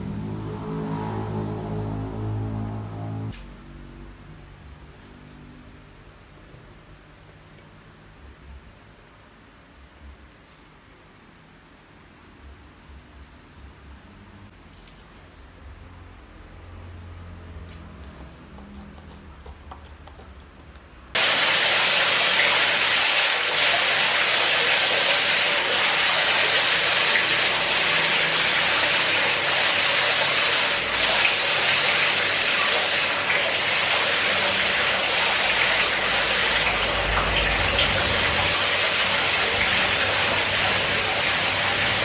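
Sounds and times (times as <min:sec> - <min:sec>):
spray gun hissing: 0:21.2 - 0:37.1, 0:37.7 - 0:42.0.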